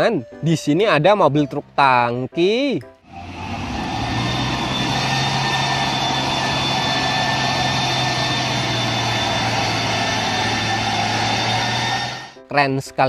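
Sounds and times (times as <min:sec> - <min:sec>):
diesel truck engine running: 0:03.1 - 0:12.4.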